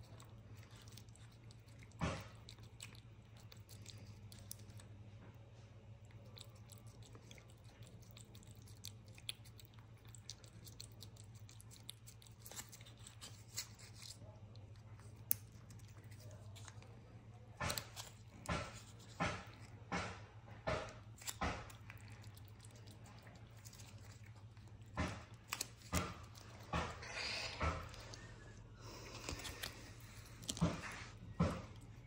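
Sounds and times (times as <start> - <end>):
cat licking: 0.0 - 20.1, 21.2 - 32.0.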